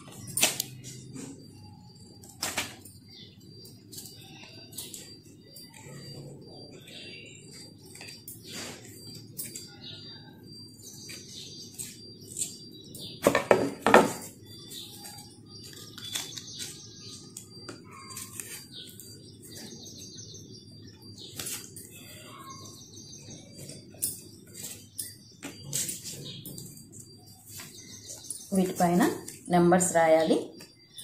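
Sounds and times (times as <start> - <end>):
small birds chirping: 0.0 - 31.0
paper rustling: 14.9 - 19.1, 21.3 - 22.0.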